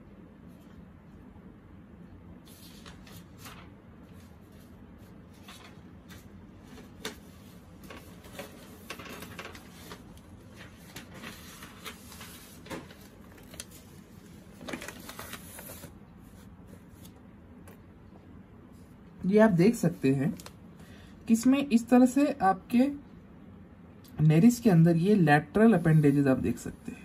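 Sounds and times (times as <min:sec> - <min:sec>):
paper pages rustling: 0:02.4 - 0:17.8.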